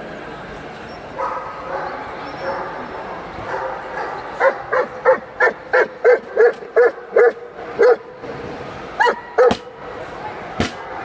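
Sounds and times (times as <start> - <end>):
dog barking: 1.2 - 2.8, 3.5 - 8.0.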